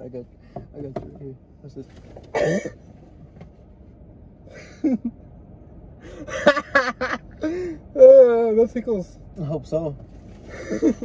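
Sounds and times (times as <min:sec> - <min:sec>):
car interior hum: 0:00.0 - 0:11.0
young man laughing: 0:04.5 - 0:05.2, 0:06.2 - 0:07.6, 0:10.5 - 0:11.0.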